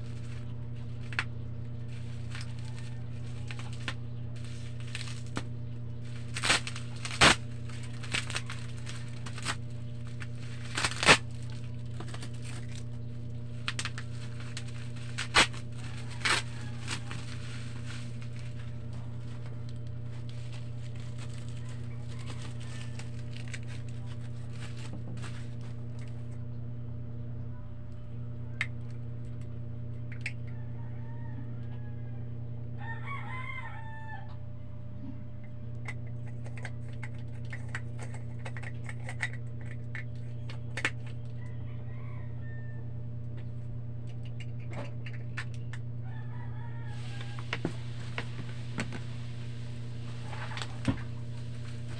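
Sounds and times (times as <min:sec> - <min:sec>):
steady low hum: 0:00.0 - 0:51.9
rooster crowing: 0:15.6 - 0:19.0, 0:21.4 - 0:23.5, 0:30.4 - 0:34.6, 0:41.4 - 0:43.0, 0:46.0 - 0:51.8.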